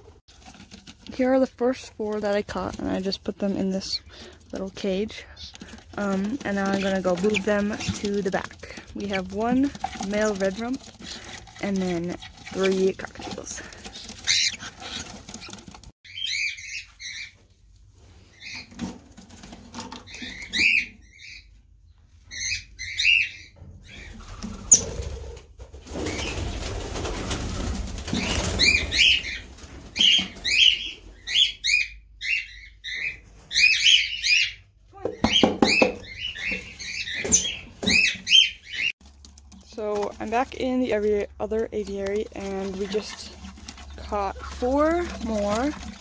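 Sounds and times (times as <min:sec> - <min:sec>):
rustling: 0:00.0 - 0:16.0, 0:24.0 - 0:30.8, 0:36.2 - 0:46.0
birds chirping: 0:01.2 - 0:17.4, 0:28.0 - 0:39.0, 0:39.7 - 0:46.0.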